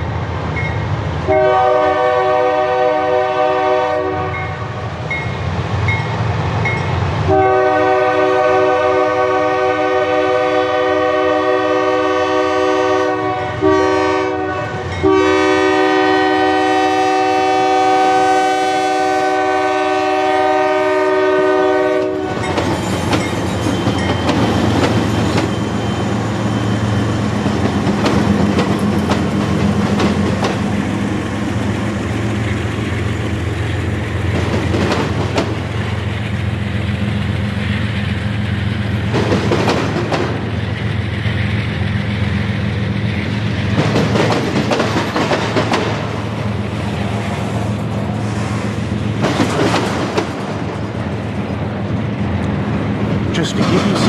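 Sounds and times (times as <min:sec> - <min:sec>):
diesel locomotives rumbling: 0:00.0 - 0:54.0
train air horn blast: 0:01.3 - 0:04.8, 0:07.3 - 0:22.4
train wheel clatter on rails: 0:21.5 - 0:54.0.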